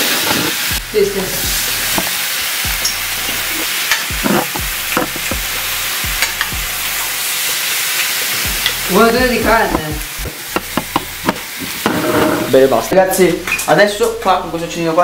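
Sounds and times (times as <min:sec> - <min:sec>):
beef sizzling in frying pan: 0:00.0 - 0:15.0
knocks at the pan: 0:10.5 - 0:12.0.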